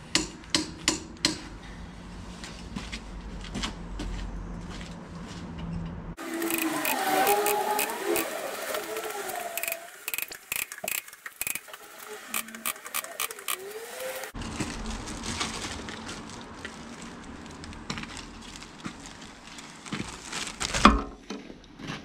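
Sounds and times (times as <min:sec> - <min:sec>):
footsteps on gravel: 0:02.7 - 0:05.5, 0:14.4 - 0:20.6
plastic bag rustling: 0:06.2 - 0:20.9.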